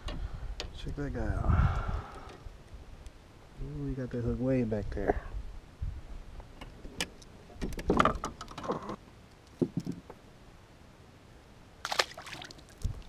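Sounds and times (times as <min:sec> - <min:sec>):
fish splashing into water: 0:11.8 - 0:13.0.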